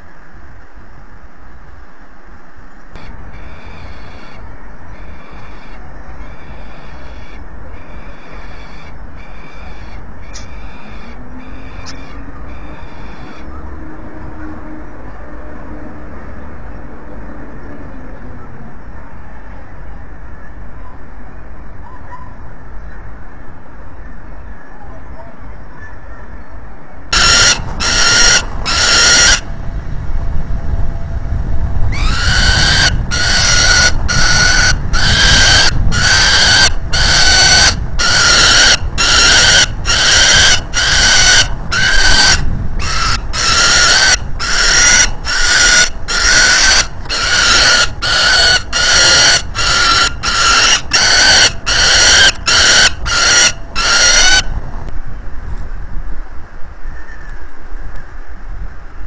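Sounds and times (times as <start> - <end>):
falcon giving harsh calls: 3.0 - 4.4, 5.0 - 13.4, 27.2 - 29.5, 31.9 - 54.5.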